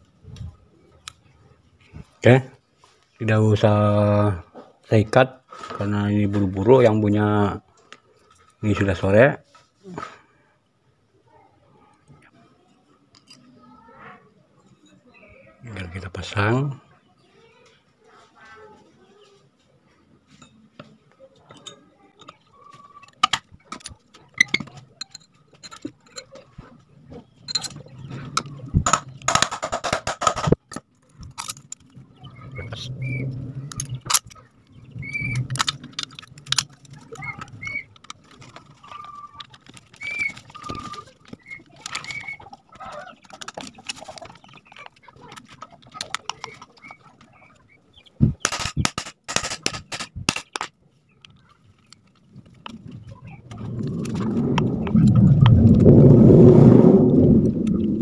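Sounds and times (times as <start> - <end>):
metal clicks and scrapes: 21.5 - 26.7, 27.4 - 32.0, 33.3 - 47.3, 48.4 - 55.6
birds calling: 21.6 - 55.0.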